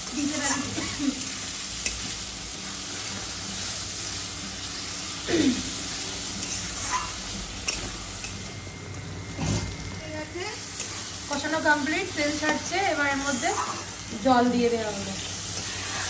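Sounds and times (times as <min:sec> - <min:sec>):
food sizzling in oil: 0:00.0 - 0:16.0
spatula scraping metal wok: 0:06.4 - 0:07.9, 0:12.2 - 0:14.0.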